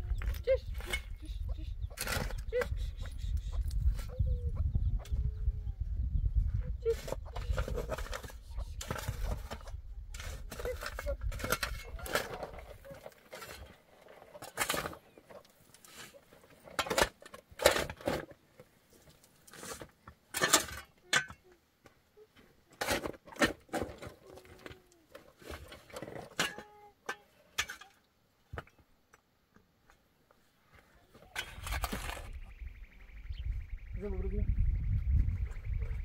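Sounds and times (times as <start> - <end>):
shovel scraping earth and stones: 1.9 - 4.2, 6.8 - 21.4, 22.7 - 28.0, 30.8 - 32.6.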